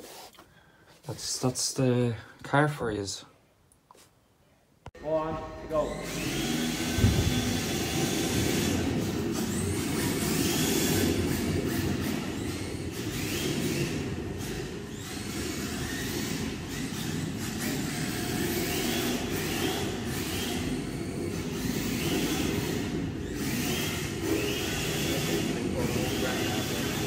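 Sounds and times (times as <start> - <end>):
electric motors whining: 5.2 - 27.0.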